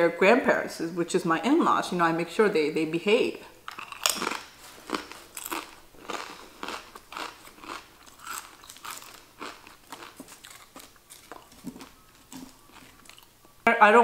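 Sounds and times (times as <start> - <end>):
chewing crunchy potato chip: 3.7 - 13.6.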